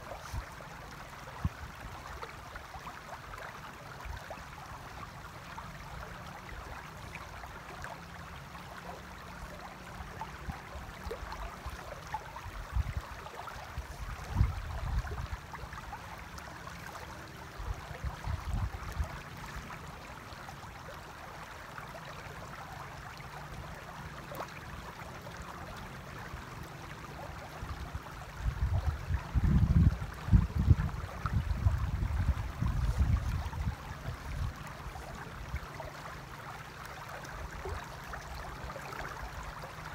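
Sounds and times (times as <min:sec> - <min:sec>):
river running over stones: 0:00.0 - 0:39.9
wind rumbling on microphone: 0:12.4 - 0:15.5, 0:17.6 - 0:19.7, 0:27.6 - 0:35.8.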